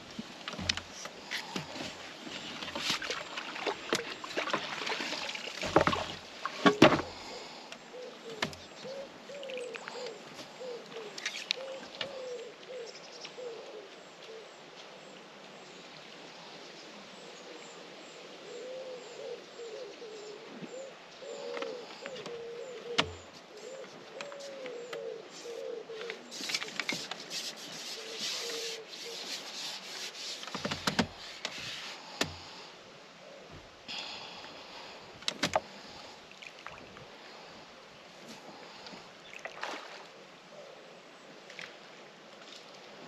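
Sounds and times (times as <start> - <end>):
fishing tackle clicks and knocks: 0.4 - 1.8, 35.2 - 35.7
pigeon cooing: 6.7 - 13.9, 18.5 - 26.8.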